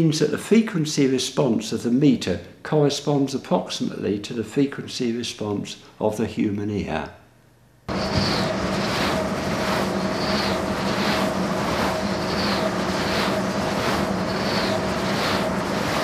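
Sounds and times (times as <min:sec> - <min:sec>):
steady hum: 0:07.4 - 0:16.0
wind turbine blades swishing: 0:07.9 - 0:16.0.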